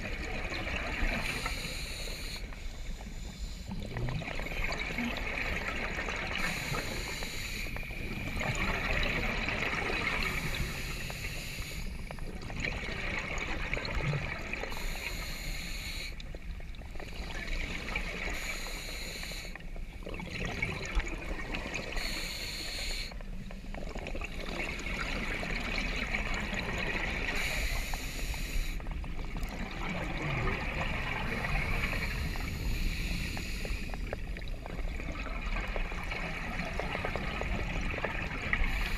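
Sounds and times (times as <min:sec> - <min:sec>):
diver breathing through regulator: 0:01.2 - 0:03.8, 0:06.3 - 0:08.2, 0:10.2 - 0:12.0, 0:14.7 - 0:16.2, 0:18.2 - 0:19.6, 0:21.8 - 0:23.2, 0:27.3 - 0:28.8, 0:31.3 - 0:34.2, 0:38.6 - 0:38.9.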